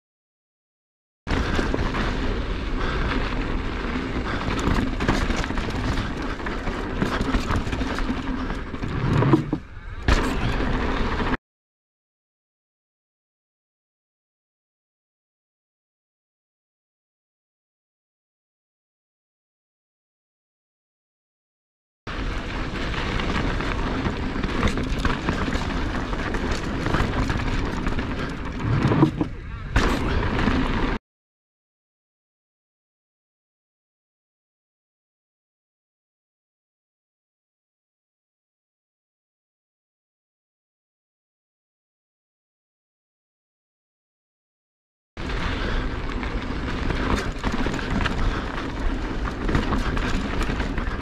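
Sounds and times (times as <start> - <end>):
bike rattles and clicks: 1.3 - 11.4, 22.1 - 31.0, 45.2 - 51.0
tyres rolling over dirt: 1.3 - 11.4, 22.1 - 31.0, 45.2 - 51.0
wind rush on microphone: 45.2 - 51.0.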